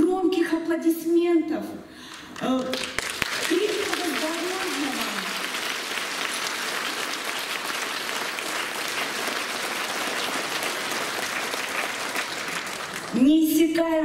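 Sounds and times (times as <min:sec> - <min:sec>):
crowd applause: 0:02.7 - 0:13.2.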